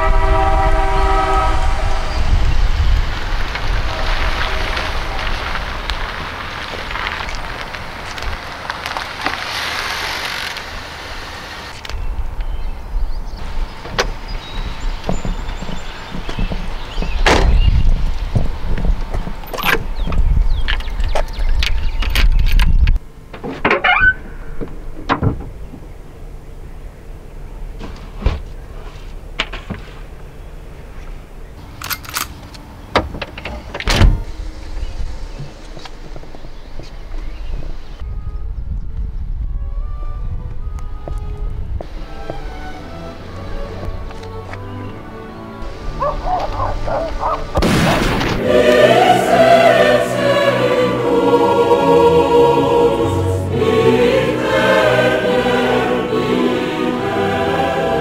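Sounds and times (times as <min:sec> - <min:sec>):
orchestral chords: 0:42.0 - 0:58.0
shotgun blast: 0:47.6 - 0:48.4
choir singing: 0:48.2 - 0:58.0.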